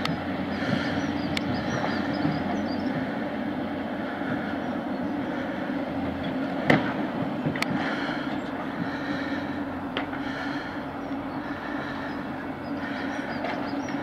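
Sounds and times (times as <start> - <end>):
steady mechanical rumble: 0.0 - 14.0.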